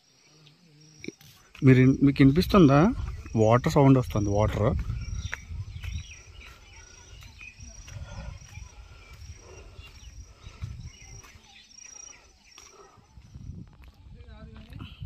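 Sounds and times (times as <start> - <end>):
insect chirping: 0.0 - 14.9
low rumbling on microphone: 2.9 - 11.4, 12.7 - 15.0.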